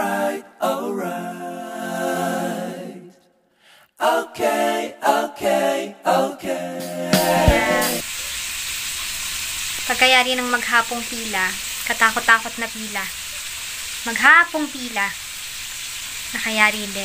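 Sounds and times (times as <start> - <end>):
a cappella singing: 0.0 - 8.0.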